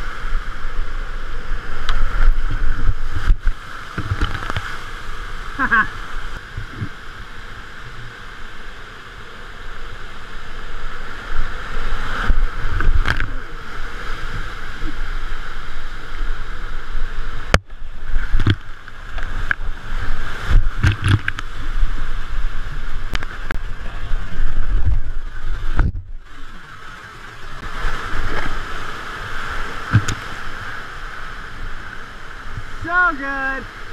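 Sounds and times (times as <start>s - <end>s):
whitewater rushing: 0.0s - 33.9s
kayak splashes and knocks: 1.8s - 5.0s, 17.4s - 22.1s, 23.0s - 26.4s, 27.6s - 30.9s.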